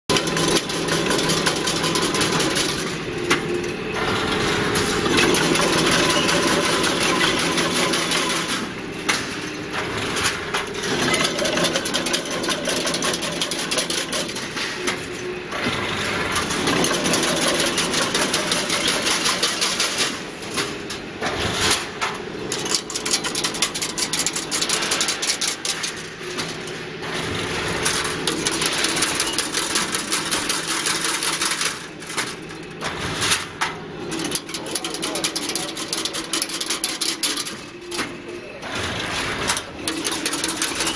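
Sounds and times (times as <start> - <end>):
steady machine noise: 0.1 - 40.9
fast metallic clatter: 22.5 - 32.6, 34.1 - 37.7, 38.9 - 40.9.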